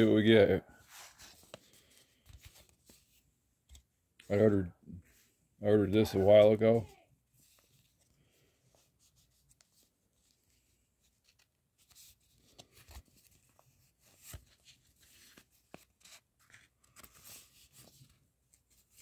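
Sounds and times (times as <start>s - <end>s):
paper envelope rustling: 0.8s - 3.9s, 8.8s - 19.0s.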